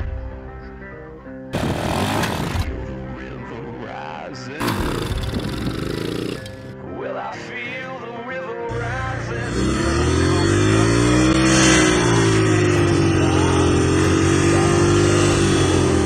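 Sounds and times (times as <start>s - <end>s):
dirt bike engine revving: 1.5s - 2.8s, 4.6s - 6.7s, 8.7s - 16.0s.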